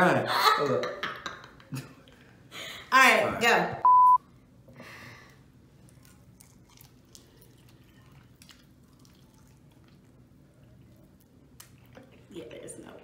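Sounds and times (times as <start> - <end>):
wet eating clicks and smacks: 5.8 - 10.2, 10.8 - 12.2.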